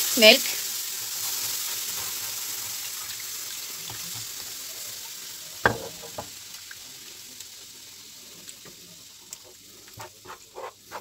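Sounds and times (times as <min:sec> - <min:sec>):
milk sizzling in a pan: 0:00.0 - 0:11.0
sharp knock: 0:05.7 - 0:06.3.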